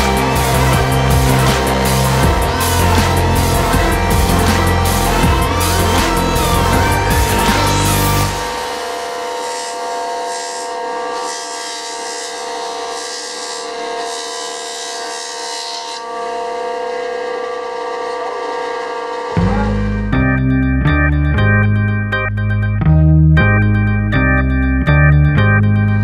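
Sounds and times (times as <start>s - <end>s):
jointer machine whine: 0.0s - 20.2s.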